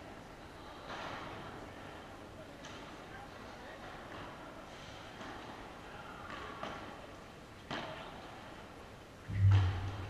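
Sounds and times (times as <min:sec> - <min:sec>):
steady low hum: 0:09.2 - 0:10.0
loud low thump: 0:09.3 - 0:10.0.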